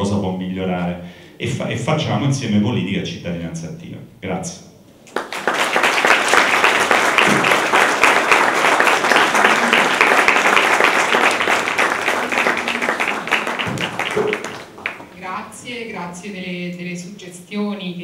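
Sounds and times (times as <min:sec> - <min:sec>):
audience applauding: 0:05.1 - 0:15.2.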